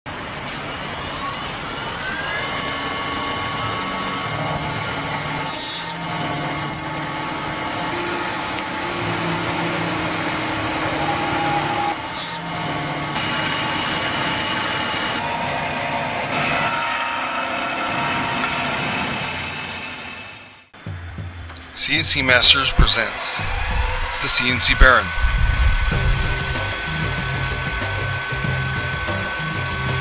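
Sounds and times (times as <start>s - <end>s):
motor whines changing pitch: 0.1s - 20.7s, 21.9s - 30.0s
milling machine cutting: 1.2s - 20.4s.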